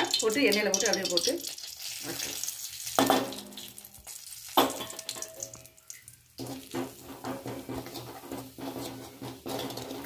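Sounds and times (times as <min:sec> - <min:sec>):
spices sizzling in hot oil: 0:00.0 - 0:10.0
wooden spatula stirring: 0:06.4 - 0:10.0.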